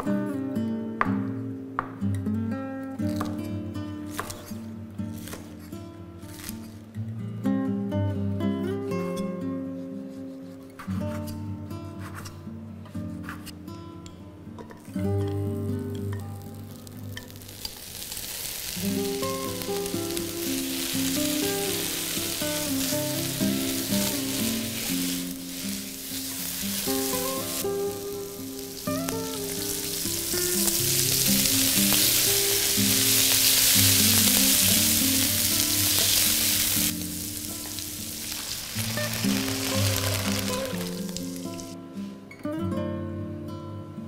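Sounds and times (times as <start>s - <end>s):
vegetables sizzling in a wok: 5.2s - 5.4s, 6.3s - 6.7s, 16.4s - 41.8s
background music: 19.0s - 44.0s.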